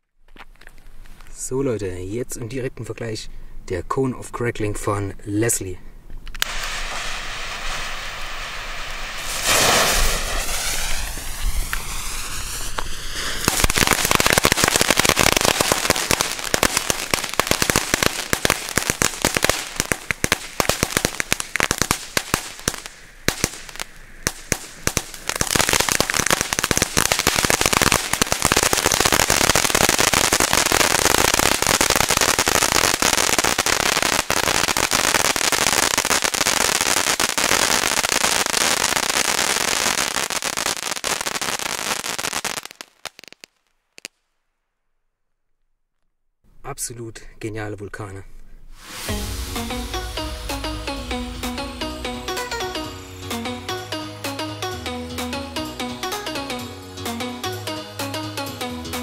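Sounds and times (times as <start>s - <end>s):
firework fountain crackling: 6.3s - 44.2s, 48.8s - 53.6s
fuse hissing: 6.4s - 13.8s, 48.7s - 50.7s.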